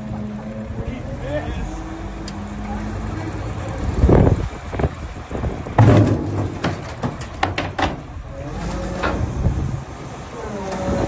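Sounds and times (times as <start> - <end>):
metal bucket crashing down: 5.8 - 8.0.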